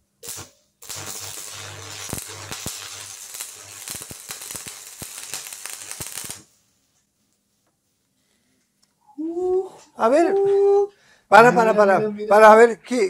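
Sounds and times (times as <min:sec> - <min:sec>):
welding arc crackling: 0:00.2 - 0:06.6.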